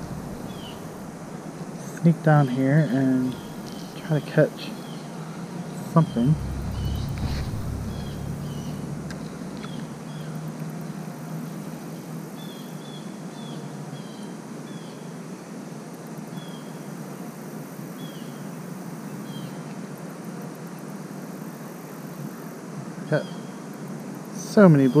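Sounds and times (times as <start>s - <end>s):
bird chirping: 0.0s - 1.1s, 2.4s - 5.1s, 5.8s - 10.4s
outdoor background noise: 0.0s - 25.0s
faint high buzz: 6.0s - 10.3s.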